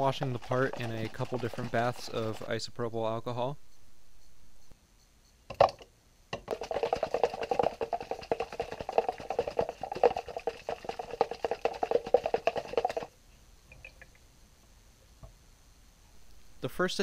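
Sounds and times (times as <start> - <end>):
liquid sloshing in shaken jar: 0.0 - 2.6, 6.4 - 13.1.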